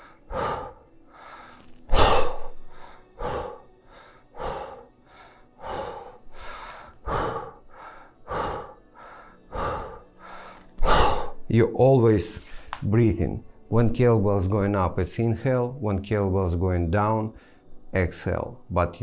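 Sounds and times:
man breathing hard: 0.0s - 11.5s.

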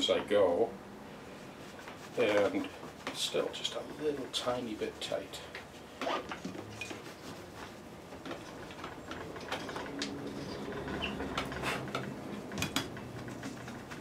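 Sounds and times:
reamer scraping in wood: 5.8s - 14.0s.

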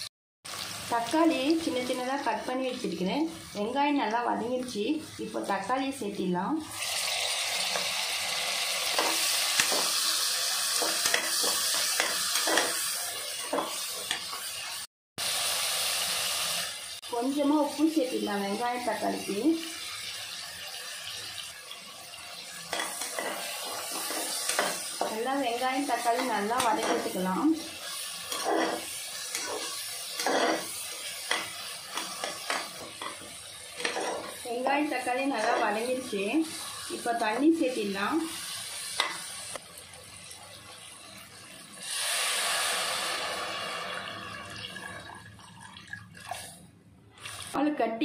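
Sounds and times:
vegetables sizzling in hot oil: 0.0s - 44.7s
ladle scraping and knocking pot: 33.8s - 34.4s.

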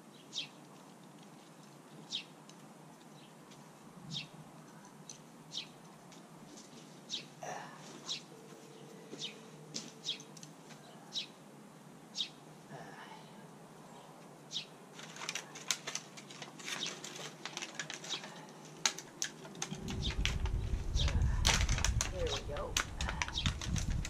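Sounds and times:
crinkling clicks: 0.6s - 3.6s, 14.9s - 24.0s
low rumble: 19.6s - 24.0s.

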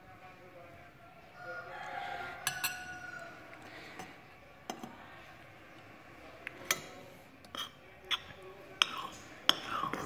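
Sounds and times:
cutlery clinking against dish: 2.4s - 3.0s, 6.5s - 10.0s.

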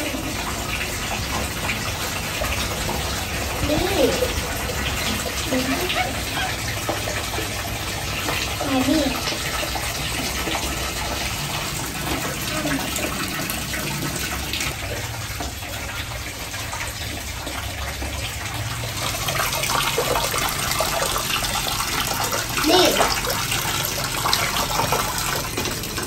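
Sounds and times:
water running into plastic basin: 0.0s - 26.0s.

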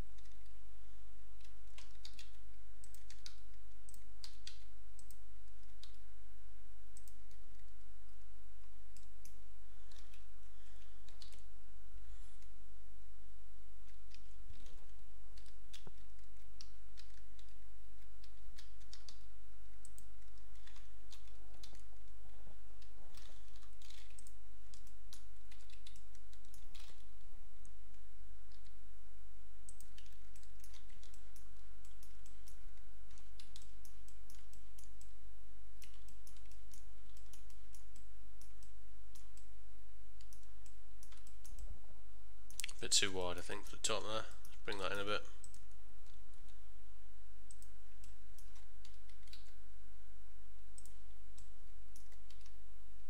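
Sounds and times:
steady low hum: 0.0s - 53.0s
keyboard and mouse clicks: 0.1s - 0.6s, 1.4s - 6.0s, 7.0s - 11.5s, 13.8s - 22.2s, 22.8s - 28.8s, 29.7s - 35.2s, 35.8s - 39.5s, 40.2s - 41.7s, 43.9s - 46.6s, 47.5s - 49.6s, 50.8s - 52.6s.

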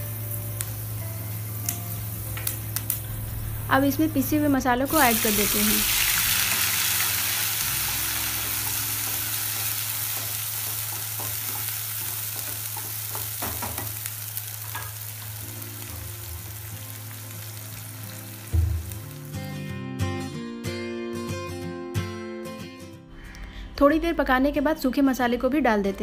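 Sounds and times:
spice paste sizzling in oil: 4.8s - 19.5s
thump: 18.5s - 19.1s.

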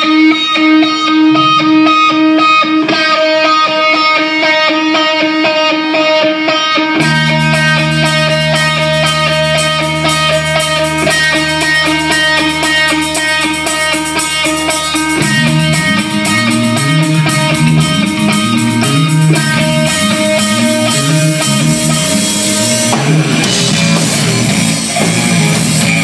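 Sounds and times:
bass guitar: 0.0s - 26.0s
electric guitar riff: 0.0s - 26.0s
drums: 7.0s - 26.0s.

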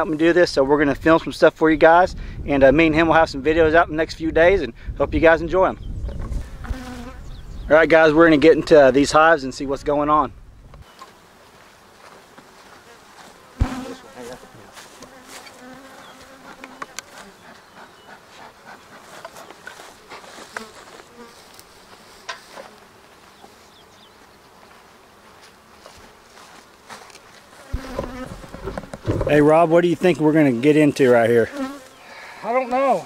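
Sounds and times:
bees buzzing: 6.3s - 9.0s, 10.8s - 32.7s.

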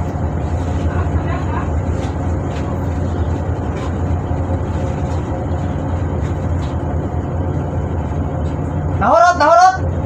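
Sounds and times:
diesel engine droning: 0.0s - 10.0s.

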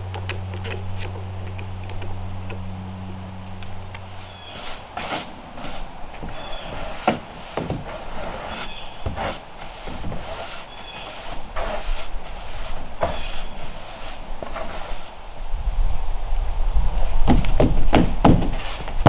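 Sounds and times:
push broom sweeping: 4.0s - 15.4s.

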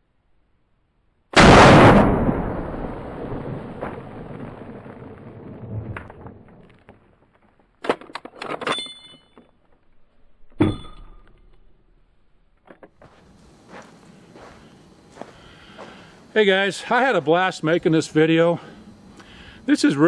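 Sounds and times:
rifle shot echo: 1.4s - 6.6s
sharp metal clack: 10.6s - 11.6s.

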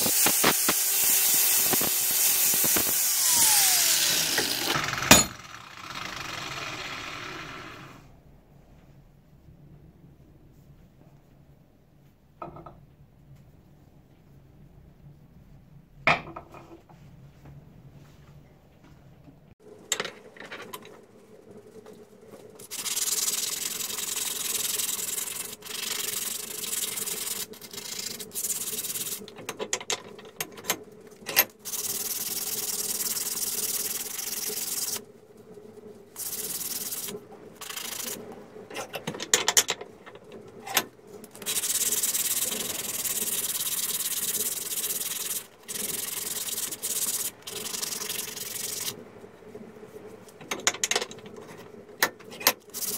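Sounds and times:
sanding metal by hand: 0.0s - 5.3s, 22.7s - 29.3s, 36.2s - 38.2s, 41.4s - 48.9s.

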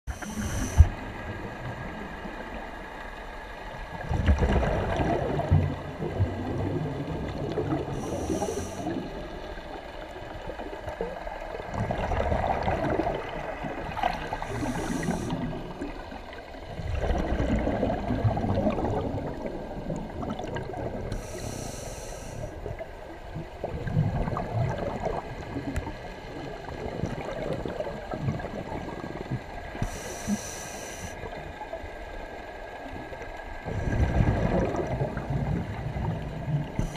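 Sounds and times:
regulator inhalation hiss: 0.1s - 1.0s, 8.0s - 8.9s, 14.4s - 15.4s, 21.1s - 22.6s, 29.8s - 31.2s
exhaust bubbles gurgling: 3.8s - 30.6s, 32.7s - 36.9s.

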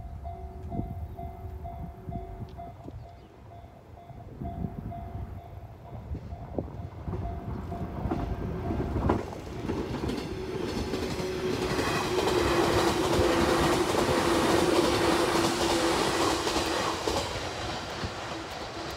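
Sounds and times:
train wheels clacking: 7.0s - 18.9s.

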